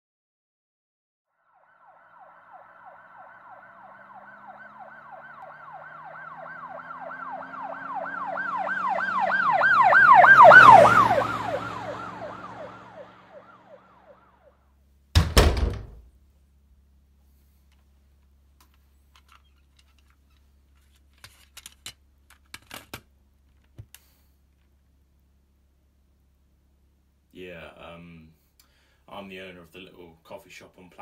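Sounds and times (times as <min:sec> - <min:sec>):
emergency siren yelping: 0:01.4 - 0:14.6.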